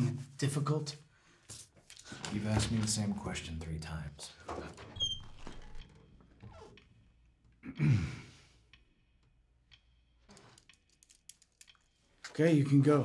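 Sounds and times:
man sighing: 0:07.6 - 0:08.6.

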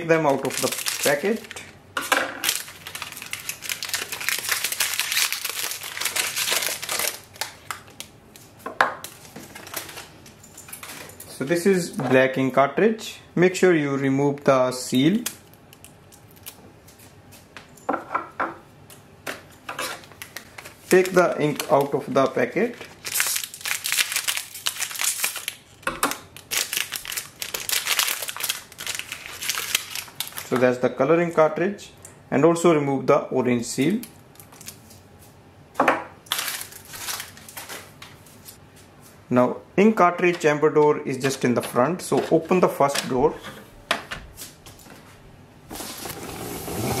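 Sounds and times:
plastic packet crinkling: 0:00.0 - 0:01.8, 0:02.4 - 0:08.1, 0:19.9 - 0:30.8, 0:33.9 - 0:34.9, 0:36.3 - 0:38.6.

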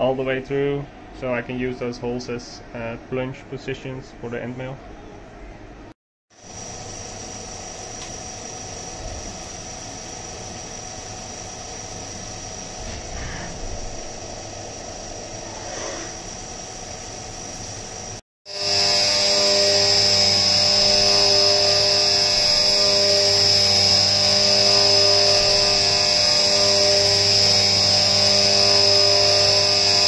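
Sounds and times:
end mill cutting with high whine: 0:06.4 - 0:30.0
milling machine spindle whine: 0:06.4 - 0:30.0.

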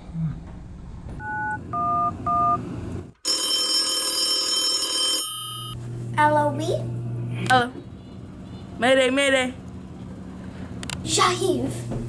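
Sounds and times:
cordless phone ringing: 0:03.2 - 0:05.8.

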